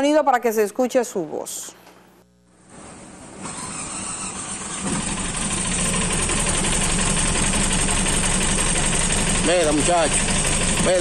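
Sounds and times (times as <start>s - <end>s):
car engine running: 4.6s - 11.0s.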